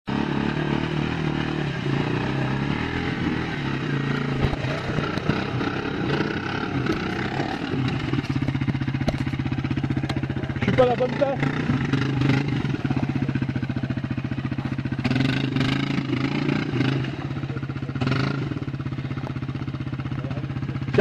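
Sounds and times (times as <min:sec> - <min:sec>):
quad bike engine running: 0:00.1 - 0:21.0
sharp knocks and clatters: 0:04.3 - 0:05.6, 0:06.8 - 0:10.2.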